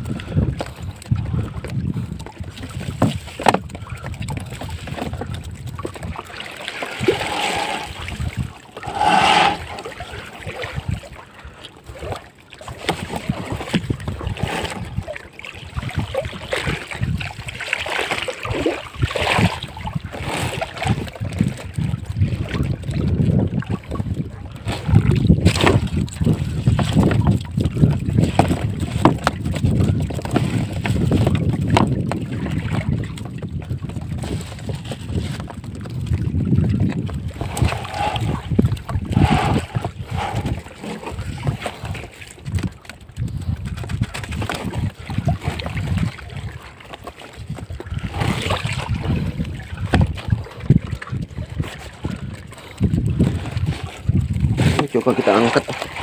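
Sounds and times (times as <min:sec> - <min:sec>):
wind buffeting microphone: 0:00.0 - 0:56.0
water splashing: 0:02.2 - 0:56.0
knocks and rustles of handled net: 0:02.3 - 0:03.8, 0:24.7 - 0:36.2, 0:39.2 - 0:48.9.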